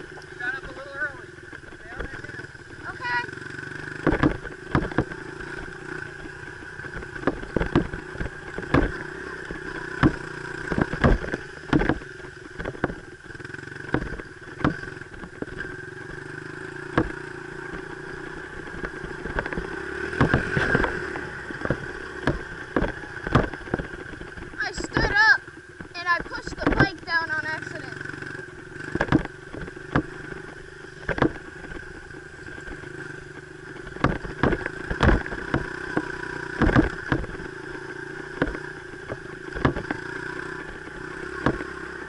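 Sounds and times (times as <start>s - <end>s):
dirt bike engine running: 0.0s - 42.0s.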